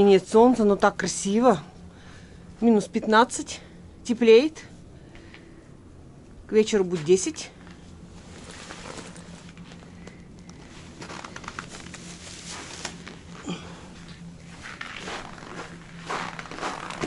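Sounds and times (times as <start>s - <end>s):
footsteps crunching on frozen snow: 14.5s - 17.0s.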